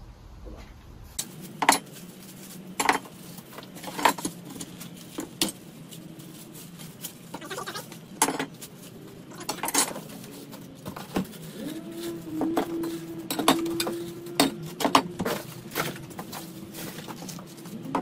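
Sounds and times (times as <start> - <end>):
metal parts clinking and knocking: 1.2 - 2.0, 2.8 - 6.0, 7.2 - 11.3, 12.6 - 18.0.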